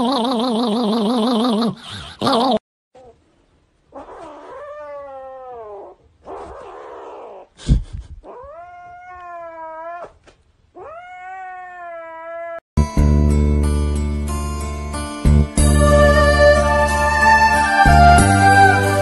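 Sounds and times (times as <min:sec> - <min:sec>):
kitten yowling: 0:03.9 - 0:07.5, 0:08.3 - 0:10.2, 0:10.8 - 0:12.6.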